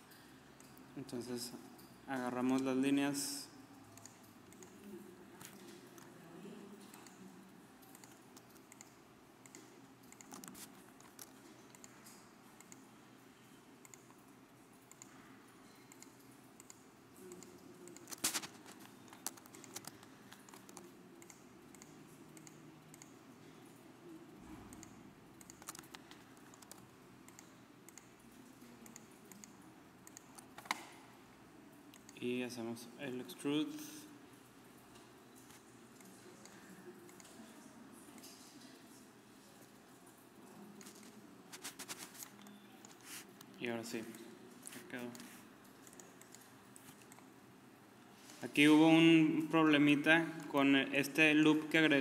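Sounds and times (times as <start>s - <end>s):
mouse and keyboard clicks: 15.9s - 23.1s, 24.7s - 28.1s, 28.8s - 30.9s.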